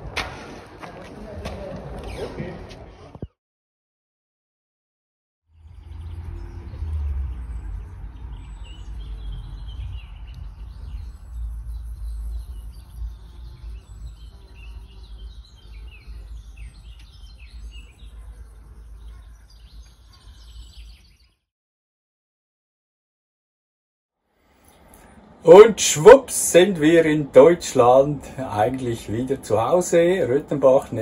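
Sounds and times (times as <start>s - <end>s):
small birds chirping: 5.5s - 21.5s.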